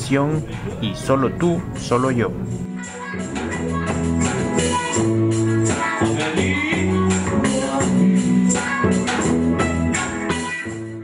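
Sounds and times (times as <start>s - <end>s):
band playing: 0.0s - 2.8s.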